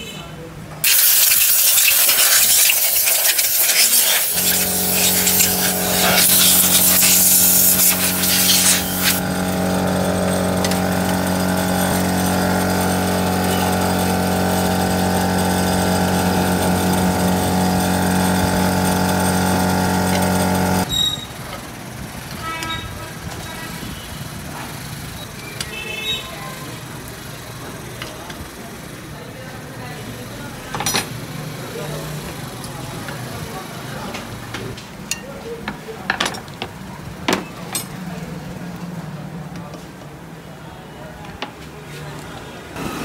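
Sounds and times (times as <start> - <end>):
loud hiss: 0.8 - 17.2
electric motor hum: 1.2 - 20.9.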